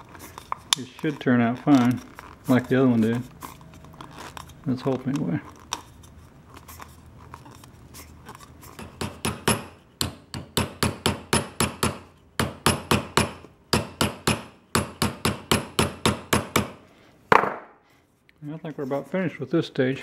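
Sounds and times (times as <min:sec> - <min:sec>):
quiet handling: 0:00.0 - 0:08.8.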